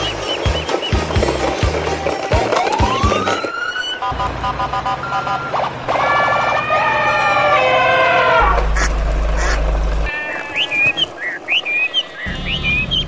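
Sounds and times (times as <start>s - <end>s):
electronic siren whoop: 2.6s - 4.1s, 5.5s - 8.6s.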